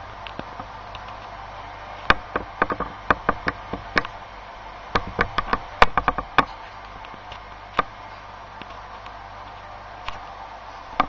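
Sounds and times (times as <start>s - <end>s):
model train wheels clicking on rails: 2.0s - 4.2s.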